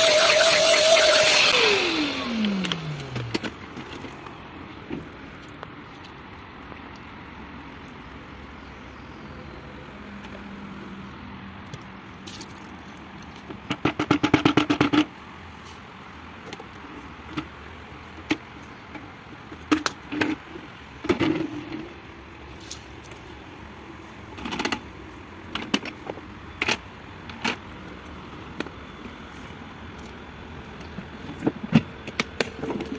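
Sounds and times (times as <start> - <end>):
plastic parts clicking and knocking: 25.5 - 27.6.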